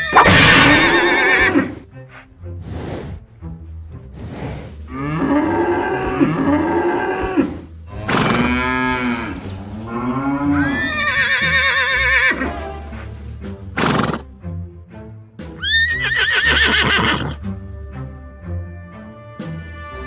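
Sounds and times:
horse whinny: 0:00.0 - 0:01.8, 0:10.2 - 0:12.5, 0:13.8 - 0:14.3, 0:15.6 - 0:17.4
cow mooing: 0:04.9 - 0:12.1.

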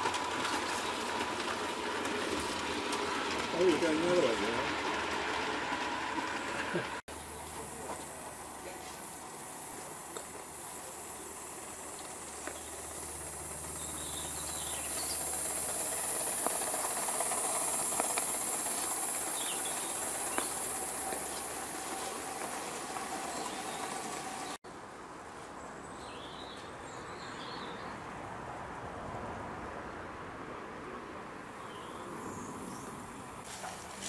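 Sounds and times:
model steam locomotive hissing: 0:00.0 - 0:24.6
wheels clicking over track: 0:00.0 - 0:24.6
outdoor background: 0:00.0 - 0:34.0.

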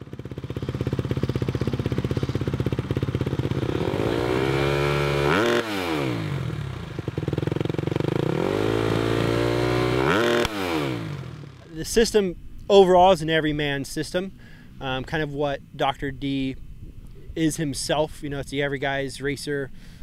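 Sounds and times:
motorcycle engine revving: 0:00.0 - 0:12.1.

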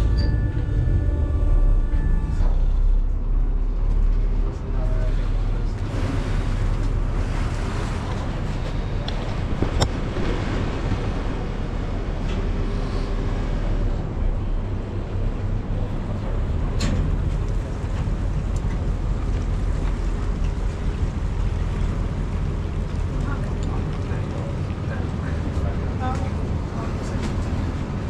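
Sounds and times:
boat engine humming: 0:00.0 - 0:28.0
wind on microphone: 0:05.8 - 0:15.1.

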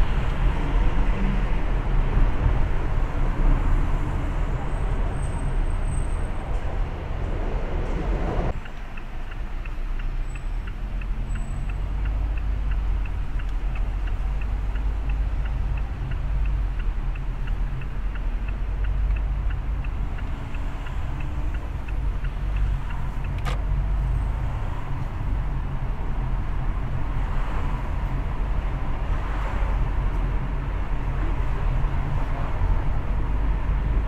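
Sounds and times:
car driving rumble: 0:00.0 - 0:34.0
turn signal ticking: 0:08.5 - 0:34.0.

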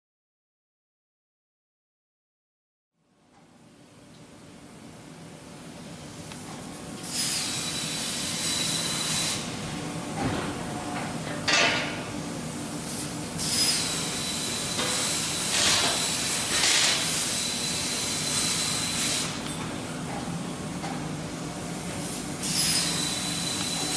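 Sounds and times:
hissing with high whistle: 0:22.4 - 0:23.9.

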